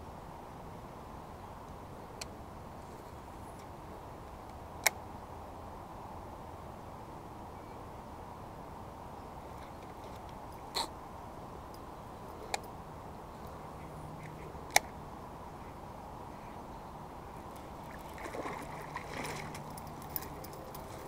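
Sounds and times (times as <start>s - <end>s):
fish thrashing and splashing: 17.7s - 21.0s.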